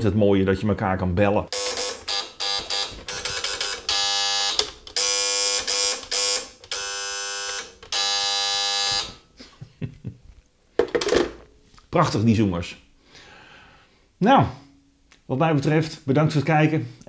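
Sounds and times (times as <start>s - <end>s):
harsh telephone call buzzes: 1.5s - 9.2s.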